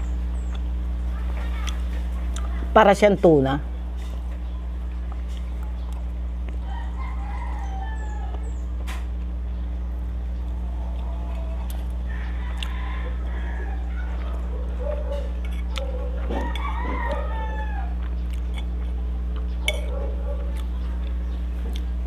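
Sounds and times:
steady low hum: 0:00.0 - 0:22.0
rooster crowing: 0:06.6 - 0:08.6, 0:10.6 - 0:18.2
cutlery clinking on plate: 0:19.7 - 0:19.9.

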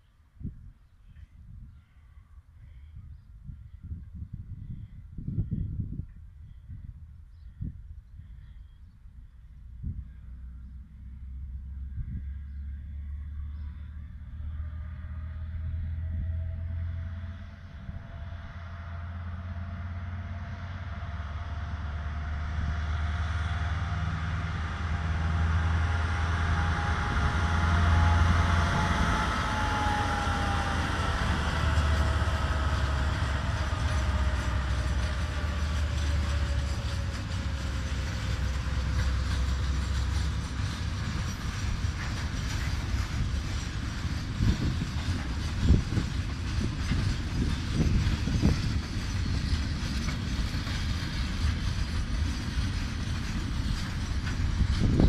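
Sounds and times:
locomotive engine rumble and whine: 0:08.2 - 0:55.0
freight wagons rolling by: 0:30.5 - 0:55.0.

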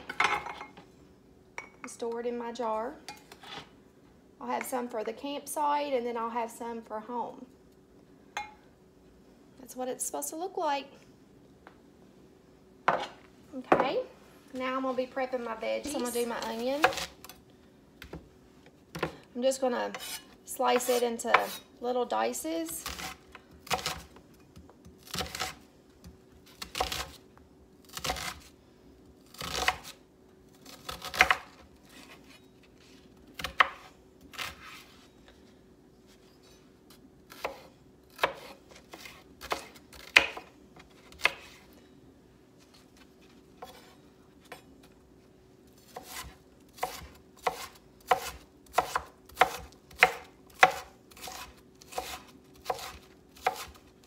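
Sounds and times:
knife chopping on wooden board: 0:33.4 - 0:34.7, 0:37.3 - 0:40.5, 0:41.1 - 0:41.6, 0:45.9 - 0:53.8.

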